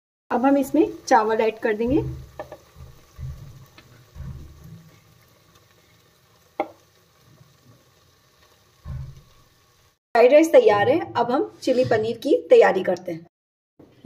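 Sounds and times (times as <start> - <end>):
food frying faintly: 0.3 - 10.0.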